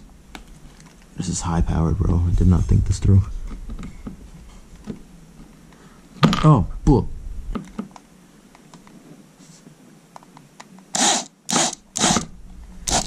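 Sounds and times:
power drill driving a screw: 10.9s - 12.3s.

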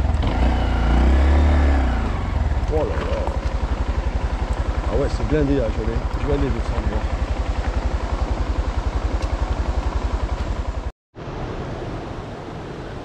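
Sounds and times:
motorcycle engine ticking over: 2.0s - 10.9s.

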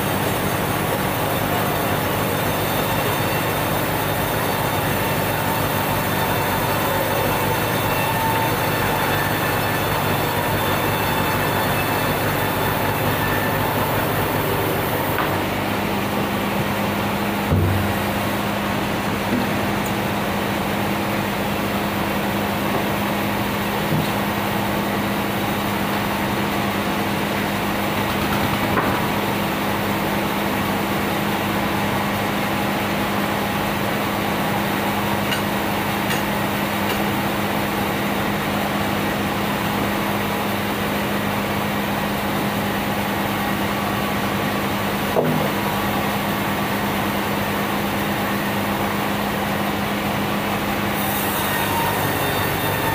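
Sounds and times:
bandsaw humming: 0.0s - 15.8s.

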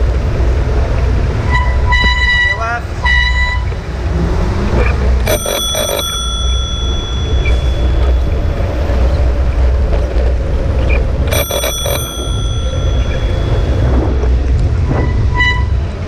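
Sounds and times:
wind and traffic rumble: 0.0s - 16.0s
bicycle bell ringing: 5.2s - 9.3s, 11.3s - 14.4s.

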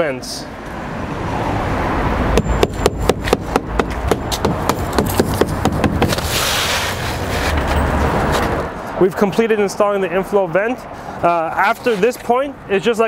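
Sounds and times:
hammer striking roofing nails: 2.4s - 6.3s
brief scraping hiss: 6.2s - 7.6s.

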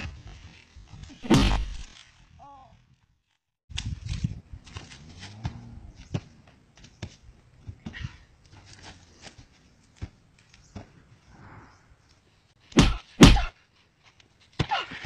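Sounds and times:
punch thwacks: 1.2s - 1.9s, 12.8s - 13.5s.

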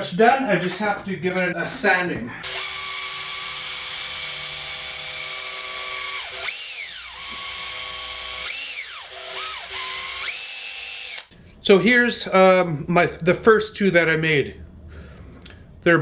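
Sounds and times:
cordless drill motor whine: 2.4s - 11.3s.

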